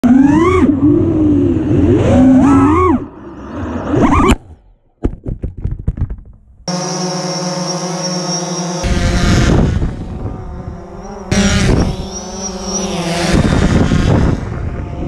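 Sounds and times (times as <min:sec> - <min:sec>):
drone motors whining: 0:06.7 - 0:15.0.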